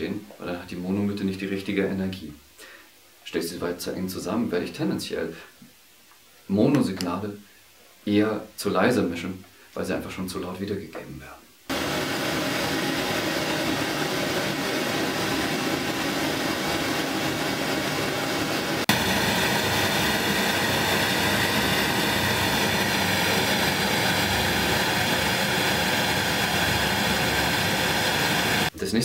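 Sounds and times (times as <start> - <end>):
pink noise hiss from loudspeakers: 0.0 - 11.7, 28.7 - 29.0.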